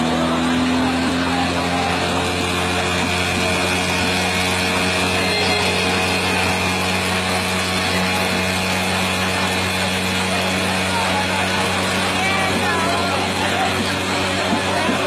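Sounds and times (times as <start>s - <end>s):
high whine of spinning head: 4.8s - 8.1s.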